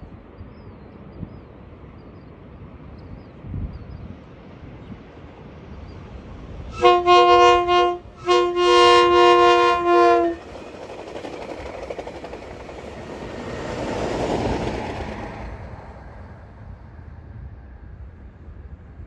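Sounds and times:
train wheels on rails: 0.1 - 19.0
train horn blasts: 6.7 - 10.6.

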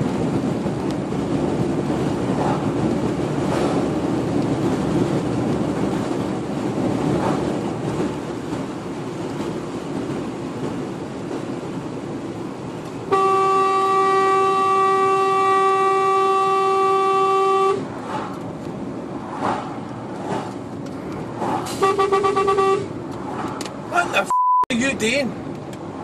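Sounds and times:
engine and road noise: 0.0 - 26.0
truck horn blasting: 13.1 - 17.9, 21.7 - 22.9.

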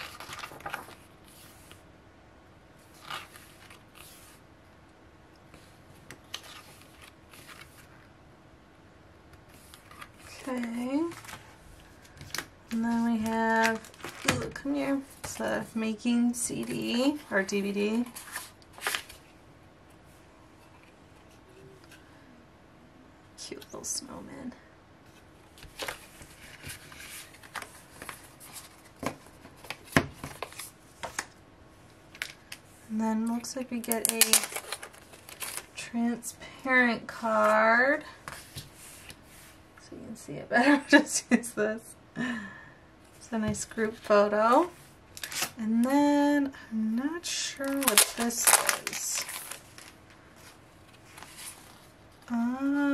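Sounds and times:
packaging rustling: 0.0 - 1.8, 9.6 - 14.6, 33.8 - 35.8, 45.2 - 45.6, 47.6 - 51.8.

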